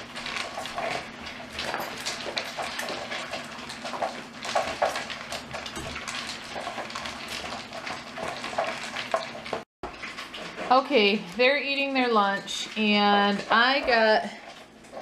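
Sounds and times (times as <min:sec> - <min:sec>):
dogs eating from plastic bowls: 0:00.0 - 0:11.3, 0:12.5 - 0:15.0.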